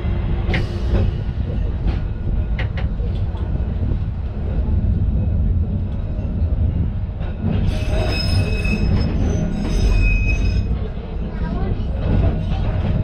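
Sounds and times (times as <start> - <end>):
tram rumbling on track: 0.0 - 13.0
high-pitched wheel squeal: 7.7 - 10.8.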